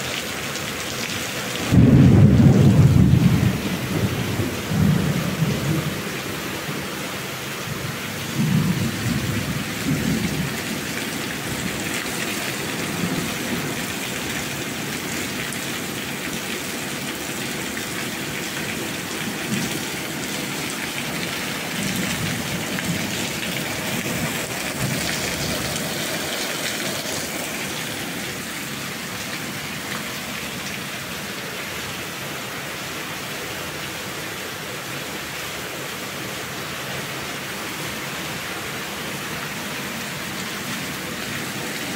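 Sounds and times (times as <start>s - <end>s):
steady rain: 0.0s - 41.9s
thunder rumbling: 1.6s - 6.4s, 21.0s - 27.7s.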